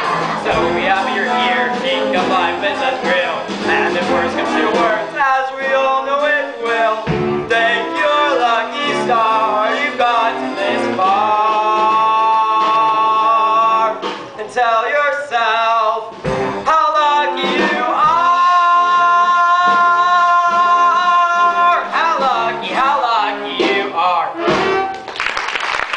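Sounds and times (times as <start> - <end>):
voices singing: 0.0 - 16.1
instrumental backing: 0.0 - 25.4.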